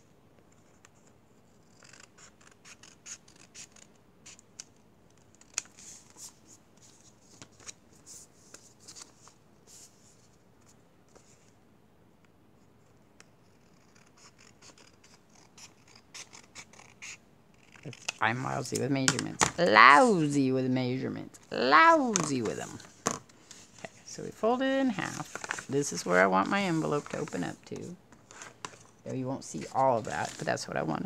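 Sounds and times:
paper rustling: 24.9s - 30.7s.

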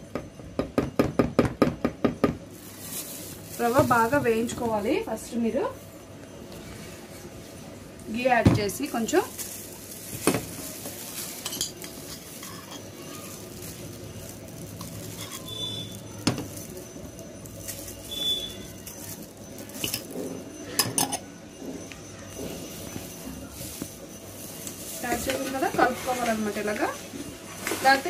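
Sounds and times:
kitchen utensils clinking: 7.5s - 28.0s.

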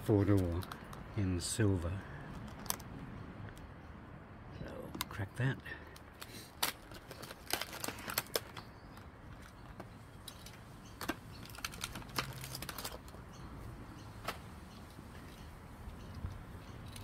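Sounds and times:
plastic box clicking and crackling: 5.9s - 9.9s, 11.0s - 13.2s.

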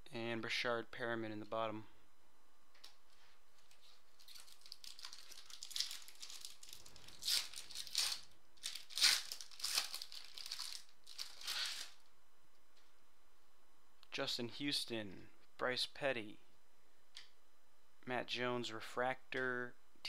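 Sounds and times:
foil wrapper crinkling and ripping: 3.7s - 12.1s.

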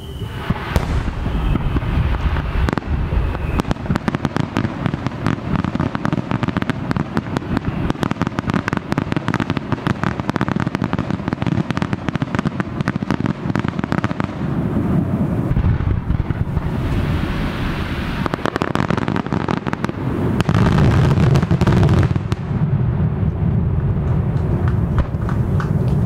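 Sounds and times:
firework crackling pops: 0.1s - 26.0s
firework shell booms: 0.2s - 9.6s.

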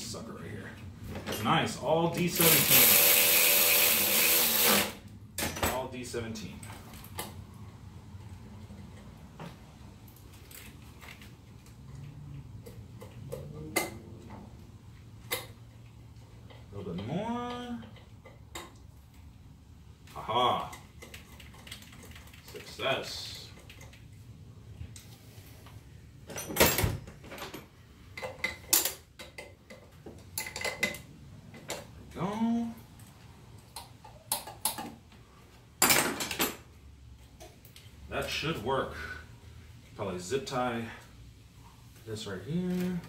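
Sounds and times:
tools and metal parts clanking: 1.1s - 1.6s, 26.2s - 31.9s, 35.8s - 36.7s.

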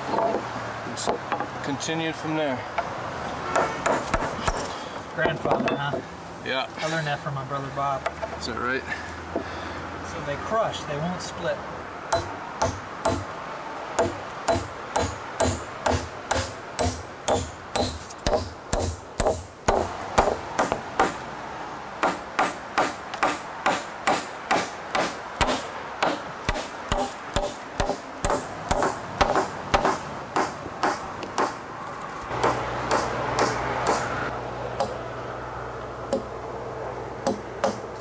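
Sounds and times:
hammer driving nails into wood: 22.0s - 31.5s, 32.4s - 34.1s.

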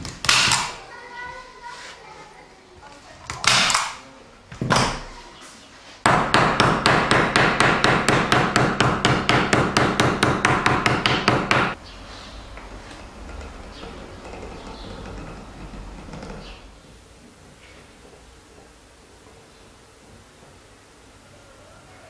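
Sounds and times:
small hammer striking staples: 0.0s - 0.8s, 3.3s - 4.0s, 6.1s - 11.8s.

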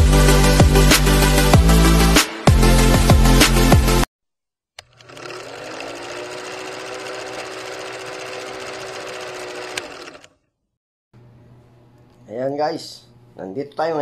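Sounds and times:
electronic music: 0.0s - 4.1s
film projector clattering: 4.8s - 10.3s.

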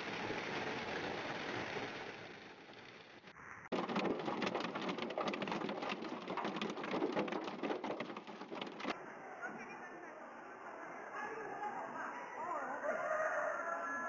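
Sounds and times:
hiss of falling precipitation: 0.0s - 4.9s
hail clattering on car: 3.7s - 9.0s.

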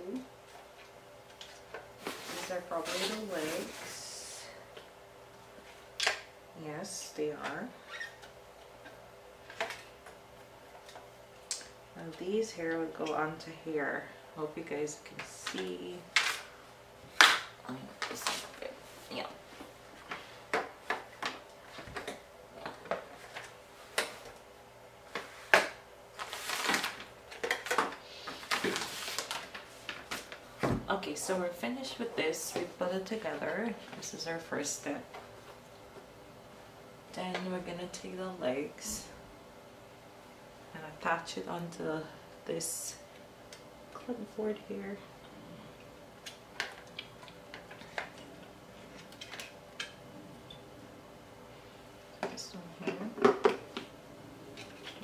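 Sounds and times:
rustling: 0.4s - 4.2s, 25.1s - 30.4s.

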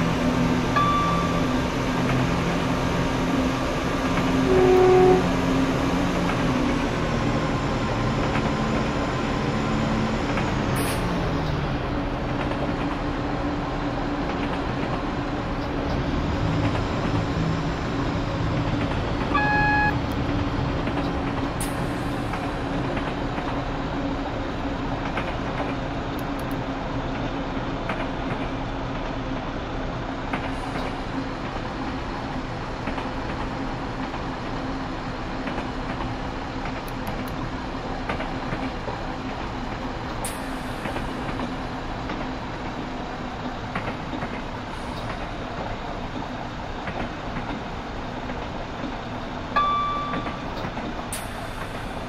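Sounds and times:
diesel train engine drone: 0.0s - 52.0s
short electronic beeps: 0.8s - 1.6s, 4.5s - 5.3s, 19.3s - 20.0s, 49.6s - 50.6s.

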